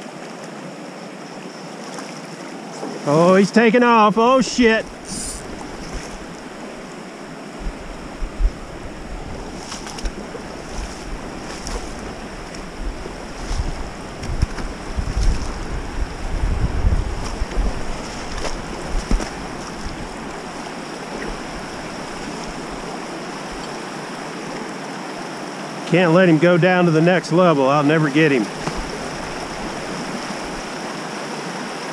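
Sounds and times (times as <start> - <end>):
river rushing over rocks: 0.0 - 31.9
wind buffeting microphone: 4.3 - 23.8.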